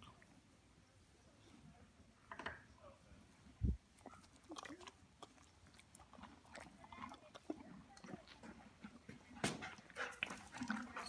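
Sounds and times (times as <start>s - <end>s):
horse chewing hay: 4.0s - 11.0s.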